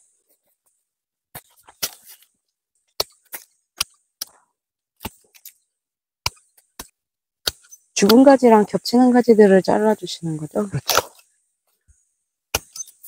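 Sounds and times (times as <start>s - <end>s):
pruning shears snipping branches: 6.2s - 8.4s.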